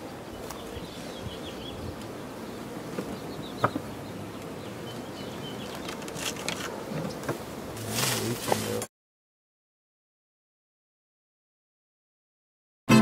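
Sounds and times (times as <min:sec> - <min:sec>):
bees buzzing: 0:00.0 - 0:08.8.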